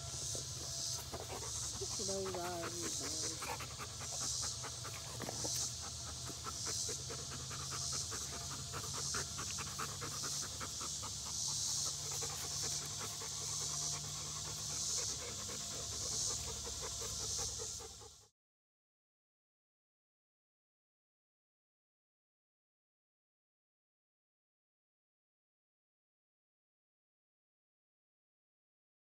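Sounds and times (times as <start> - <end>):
dogs panting: 0.0 - 18.3.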